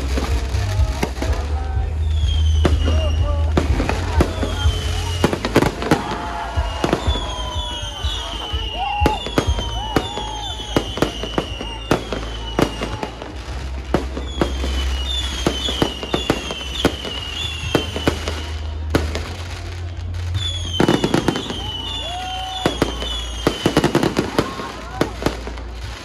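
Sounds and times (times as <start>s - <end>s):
steady low rumble: 0.0s - 10.2s
fireworks bangs and crackles: 0.0s - 26.0s
fireworks whistles dipping in pitch: 2.0s - 26.0s.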